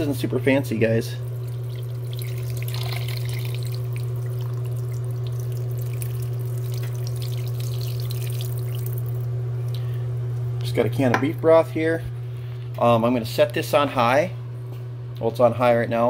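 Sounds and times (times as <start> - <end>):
constant low hum: 0.0 - 16.0
liquid trickling into a pot: 1.2 - 9.2.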